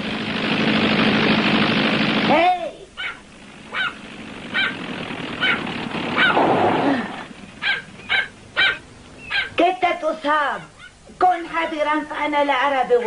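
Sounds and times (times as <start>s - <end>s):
car engine running: 0.0s - 9.4s
small dog yapping: 3.0s - 4.8s, 5.4s - 9.6s, 10.7s - 11.0s.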